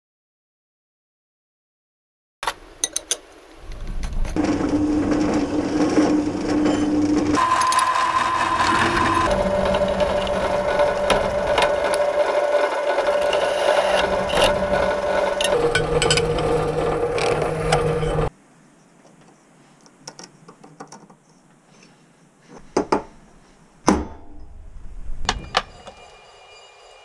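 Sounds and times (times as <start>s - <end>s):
steel bars and tools clicking: 2.4s - 4.4s, 8.6s - 18.3s
drill press cutting steel: 4.4s - 18.3s.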